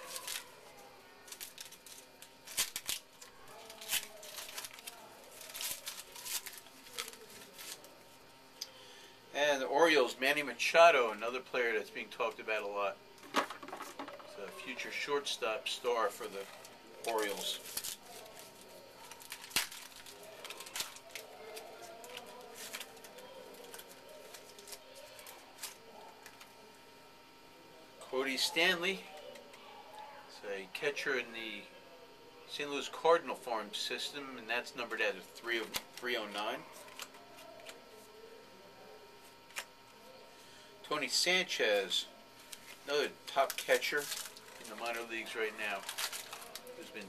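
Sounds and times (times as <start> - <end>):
trading cards rustling and snapping: 0.0 - 0.6, 1.2 - 8.0, 16.2 - 26.5, 35.6 - 37.8, 39.5 - 39.7, 43.4 - 47.0
trading cards slapping and flicking: 1.3 - 3.0, 16.6 - 25.8.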